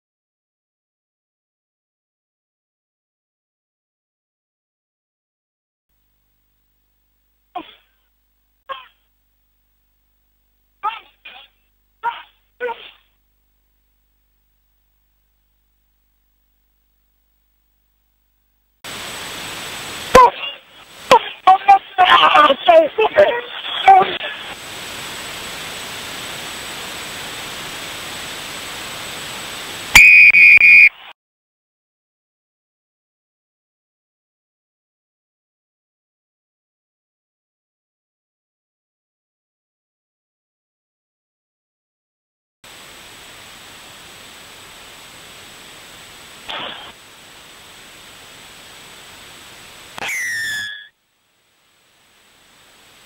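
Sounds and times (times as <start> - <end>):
stadium ambience hiss: 5.9 - 31.1, 42.7 - 53.0
referee's whistle blasts: 29.9 - 31.0, 50.0 - 50.9.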